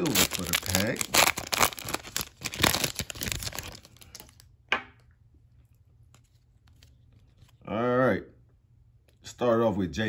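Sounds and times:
foil pack tearing and crinkling: 0.0s - 4.4s.

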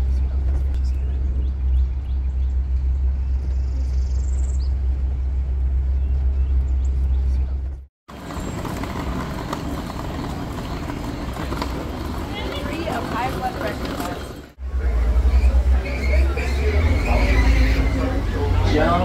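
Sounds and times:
steady low rumble: 0.0s - 12.8s
people walking: 7.0s - 16.6s
murmur of voices: 10.8s - 19.0s.

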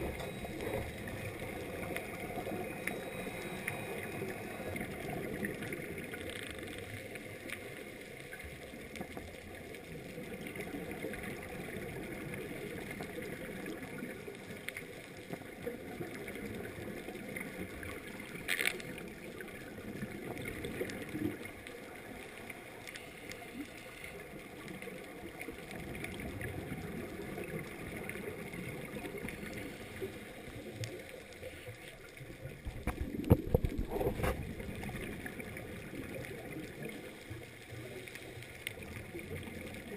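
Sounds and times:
muffled underwater water rush: 0.0s - 39.9s
regulator bubbles bursting: 32.2s - 37.4s.

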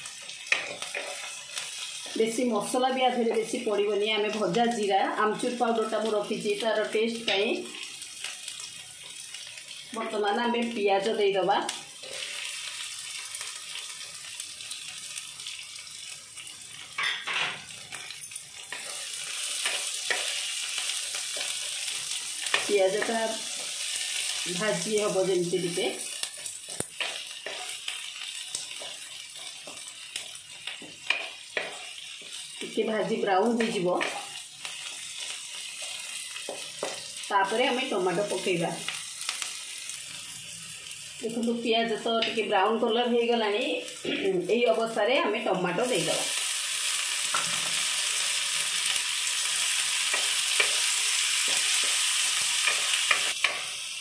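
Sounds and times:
onions sizzling in oil: 0.0s - 54.0s
spatula scraping and tapping pan: 26.4s - 27.9s, 28.5s - 32.7s, 35.8s - 37.2s.

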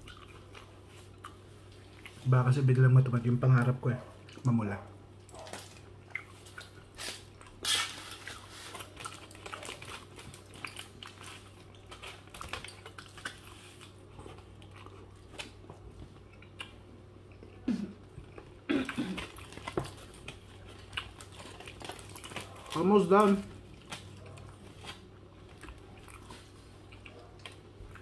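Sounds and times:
chewing a burger: 0.0s - 28.0s
foil wrapper crackling: 6.8s - 14.1s, 19.2s - 25.1s.

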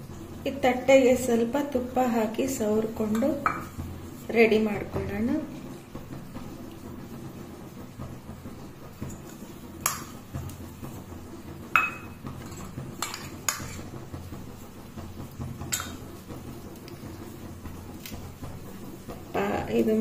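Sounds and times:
low steady hum: 8.5s - 20.0s
metal kitchenware clinking: 11.8s - 13.9s.

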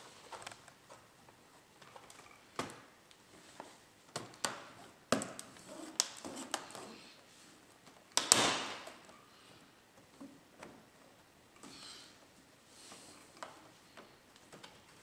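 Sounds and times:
laptop snap and rattle: 8.1s - 8.8s.

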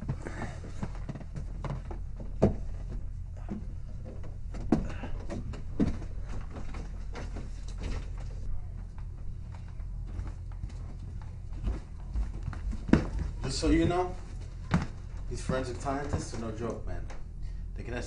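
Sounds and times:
steady low hum: 0.0s - 18.0s
footsteps thudding: 10.0s - 16.8s.

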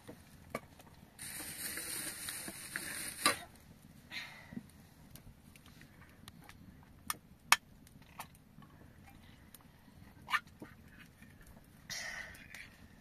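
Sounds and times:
can seal breaking hiss: 1.2s - 3.5s.

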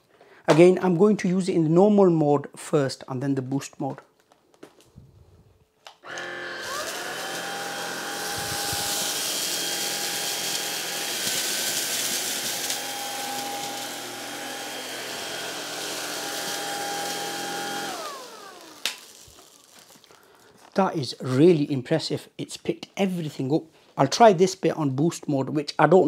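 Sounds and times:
stick vacuum motor whine: 6.0s - 20.0s.

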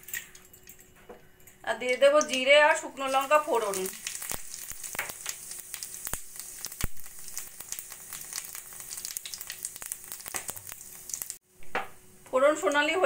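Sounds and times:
spices sizzling in hot oil: 2.0s - 11.4s.

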